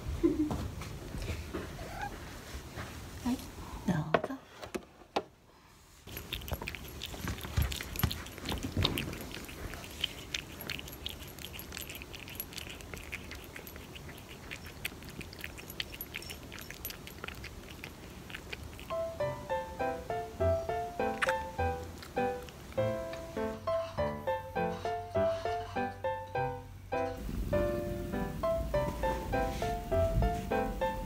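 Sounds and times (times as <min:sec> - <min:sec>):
cat crunching dry kibble: 0:06.1 - 0:19.0, 0:21.1 - 0:22.8.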